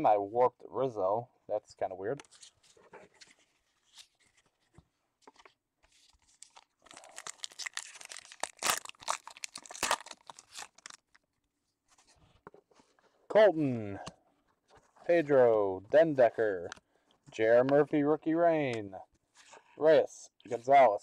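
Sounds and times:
foil wrapper tearing and crinkling: 6.2s - 11.2s.

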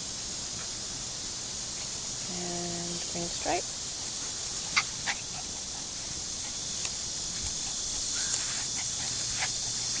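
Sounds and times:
puppies yipping: 4.6s - 6.6s, 7.4s - 10.0s.

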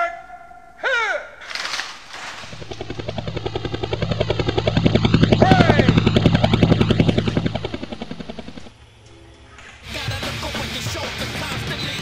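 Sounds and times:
helicopter rotor chop: 1.5s - 8.9s
whine gliding in pitch: 2.4s - 9.6s.

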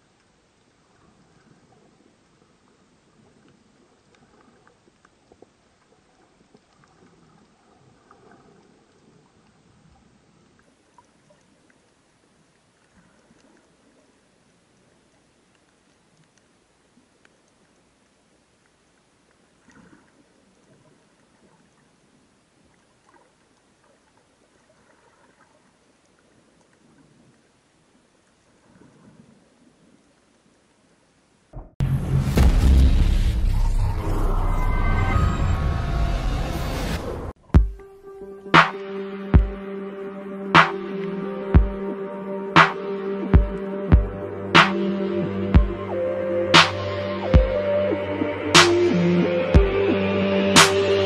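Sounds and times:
underwater water movement: 0.0s - 30.9s
small underwater clicks: 0.0s - 31.0s.

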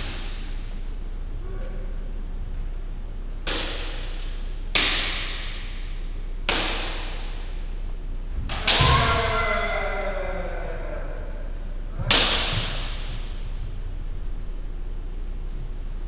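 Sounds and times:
bamboo sword strikes cracking: 3.4s - 5.9s, 6.5s - 7.6s, 12.1s - 13.3s
person shouting: 8.5s - 13.2s.

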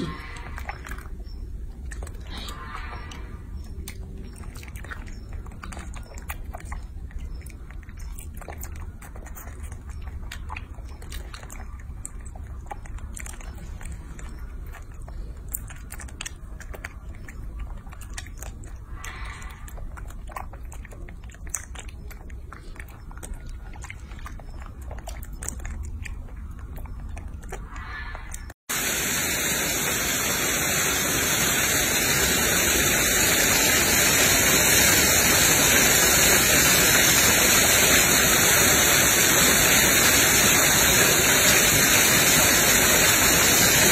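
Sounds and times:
wet mouth clicks and smacks: 0.0s - 28.6s
monkeys chewing and sucking candy: 0.0s - 43.9s
small waterfall splashing: 28.7s - 43.9s.

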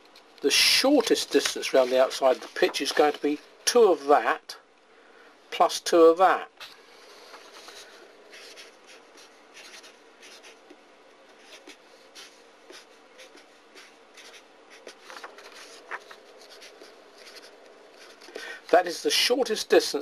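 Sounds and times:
marker pen writing on paper: 7.3s - 18.3s.

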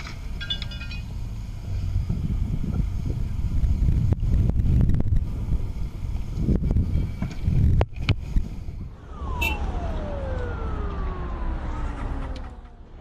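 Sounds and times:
traffic rumble: 0.0s - 13.0s
wind: 0.0s - 13.0s
siren winding down: 8.9s - 13.0s.

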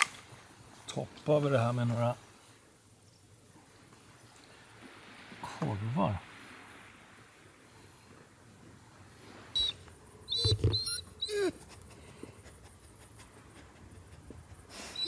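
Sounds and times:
dog grunting and whining: 10.3s - 15.0s.

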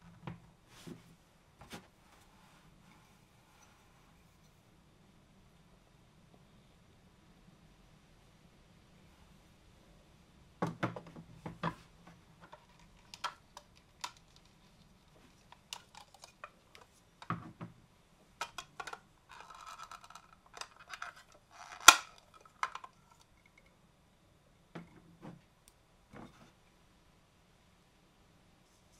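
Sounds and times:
plastic crinkling: 12.4s - 17.0s, 18.4s - 23.3s
sharp plastic snap: 21.7s - 22.2s.

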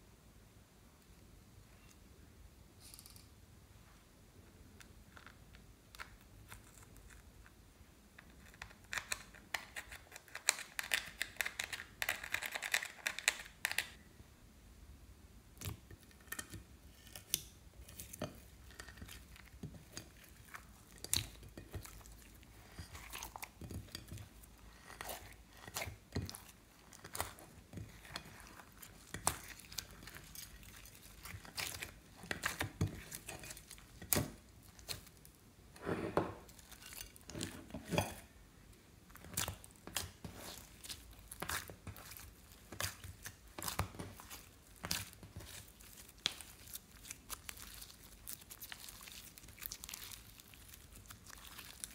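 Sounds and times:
hands squishing slime: 17.2s - 35.2s, 39.1s - 51.9s.

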